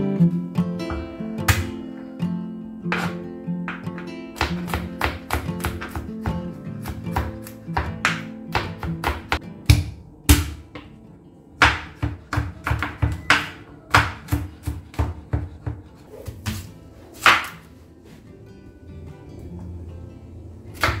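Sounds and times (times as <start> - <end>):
knife chopping on wooden board: 2.9 - 10.6, 11.6 - 17.7.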